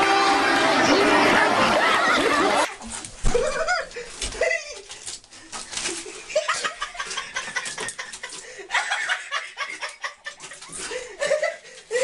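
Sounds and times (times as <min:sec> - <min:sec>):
person laughing: 0:01.5 - 0:04.9, 0:06.0 - 0:12.0.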